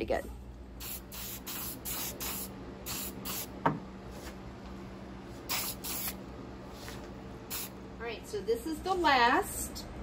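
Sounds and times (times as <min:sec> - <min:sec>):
spray can hissing: 0:00.8 - 0:03.5, 0:05.5 - 0:06.2, 0:07.5 - 0:07.8.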